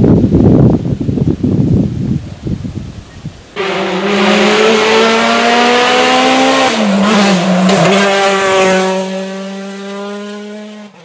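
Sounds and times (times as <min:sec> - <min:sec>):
rally car engine at full throttle: 0:03.6 - 0:11.0.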